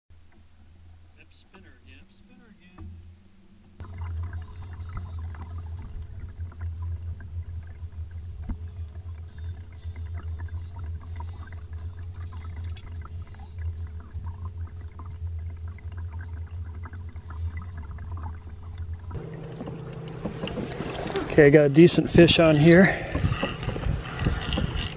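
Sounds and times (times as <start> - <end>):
electric outboard motor humming: 2.2 - 24.9
water ticking against hull: 3.7 - 24.9.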